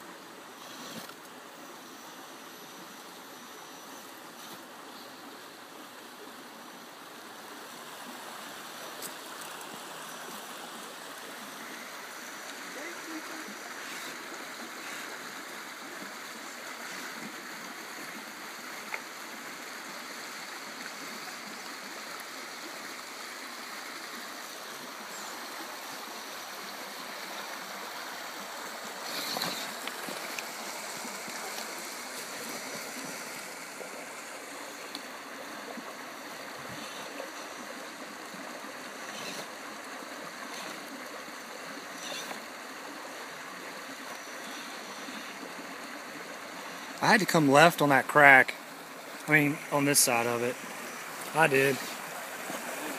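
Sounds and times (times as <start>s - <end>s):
river flowing over rocks: 0.0s - 52.9s
faint clicks: 34.9s - 35.1s.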